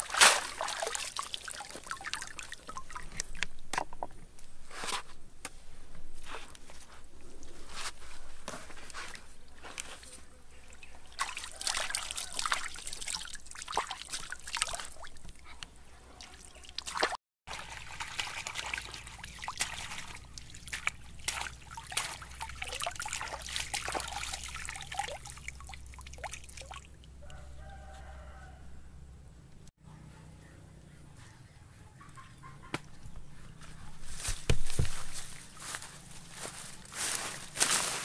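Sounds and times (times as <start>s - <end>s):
water splashing and trickling: 0.0s - 4.1s, 7.0s - 27.4s.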